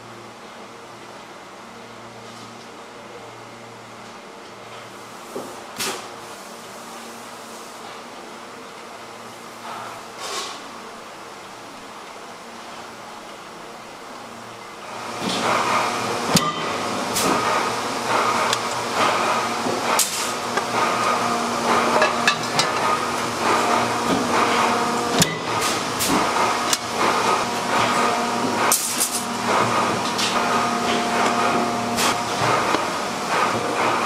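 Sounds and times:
machine hum: 0:14.4 - 0:34.0.

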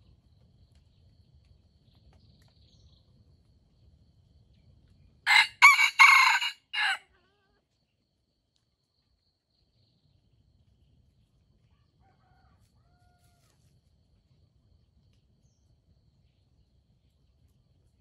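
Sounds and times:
distant rooster crowing: 0:05.3 - 0:07.0, 0:12.0 - 0:13.5.

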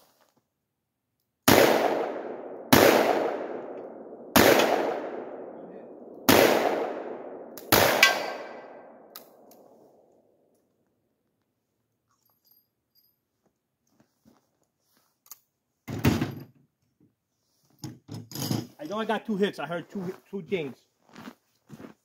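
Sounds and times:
revolver gunshots with echo: 0:01.5 - 0:10.0.

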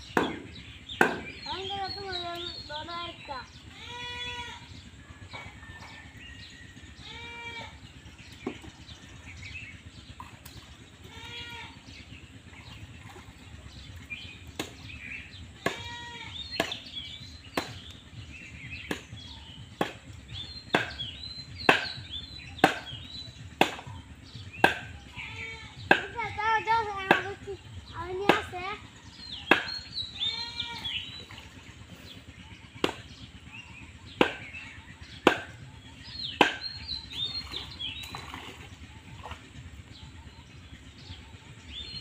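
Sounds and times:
stick slapping pond water: 0:00.0 - 0:02.5, 0:10.0 - 0:11.2, 0:12.6 - 0:25.2, 0:25.8 - 0:30.0, 0:30.8 - 0:32.0, 0:32.7 - 0:33.1, 0:34.2 - 0:34.6, 0:35.2 - 0:35.6, 0:36.2 - 0:39.8
farm animal bleating: 0:03.6 - 0:04.8, 0:07.0 - 0:08.0, 0:11.0 - 0:12.1, 0:15.5 - 0:16.7, 0:25.0 - 0:25.9, 0:30.1 - 0:31.6.

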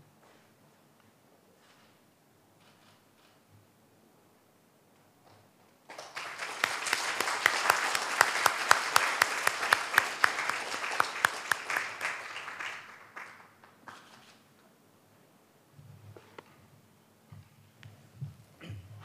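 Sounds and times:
audience applauding: 0:05.9 - 0:14.1.

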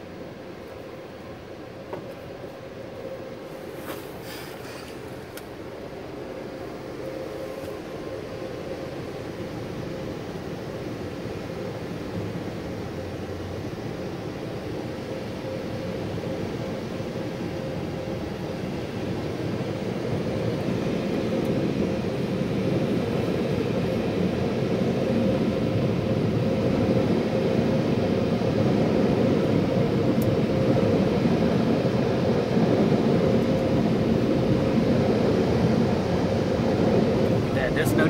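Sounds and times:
car wash dryer blowers rushing: 0:33.5 - 0:38.0.

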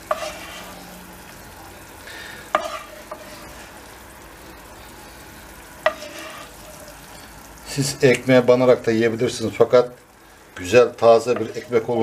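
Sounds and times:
wooden spoon scraping a pan: 0:00.0 - 0:01.4, 0:02.1 - 0:04.0, 0:04.8 - 0:07.5, 0:11.0 - 0:12.0
faint steady sizzle: 0:00.0 - 0:12.0.

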